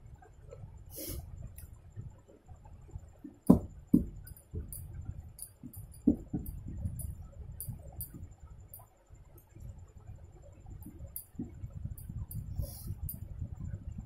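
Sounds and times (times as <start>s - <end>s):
knocks against metal plate: 3.5s - 4.2s.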